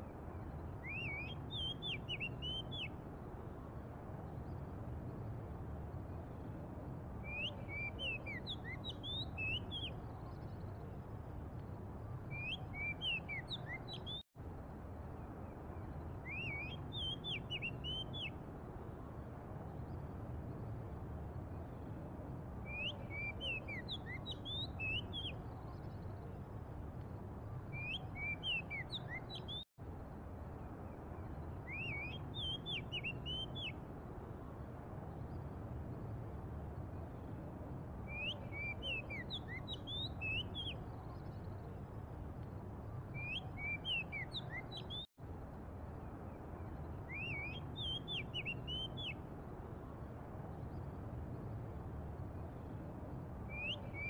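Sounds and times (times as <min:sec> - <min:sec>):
low rumble of city traffic: 0:00.0 - 0:54.0
bird singing gliding whistles: 0:00.1 - 0:03.0, 0:07.2 - 0:10.5, 0:12.2 - 0:14.2, 0:15.8 - 0:18.4, 0:22.6 - 0:26.2, 0:27.6 - 0:29.7, 0:31.3 - 0:33.8, 0:38.0 - 0:41.6, 0:43.0 - 0:45.1, 0:46.7 - 0:49.2, 0:53.5 - 0:54.0.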